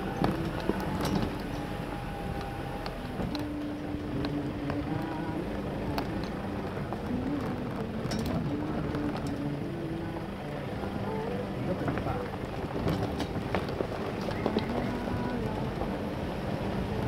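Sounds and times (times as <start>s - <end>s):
tyres on dirt: 0.0s - 17.0s
vehicle engine humming: 0.0s - 17.0s
vehicle body knocks and rattles: 12.6s - 15.0s.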